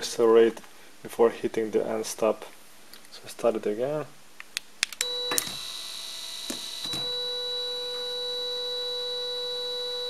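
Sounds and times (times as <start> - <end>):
electric motor whining: 5.0 - 10.0.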